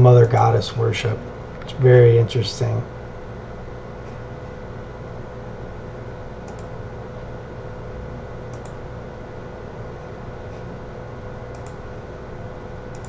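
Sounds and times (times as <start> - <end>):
electrical hum: 0.0 - 13.0
computer mouse clicks: 6.4 - 6.7, 8.5 - 8.8, 11.5 - 11.8.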